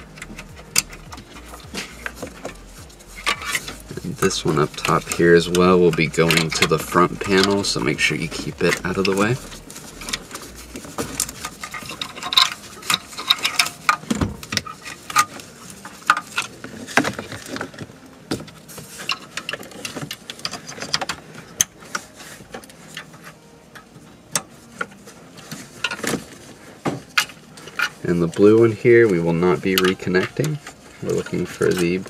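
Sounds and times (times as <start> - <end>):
plastic connectors rattling and clicking: 0.0 - 23.2.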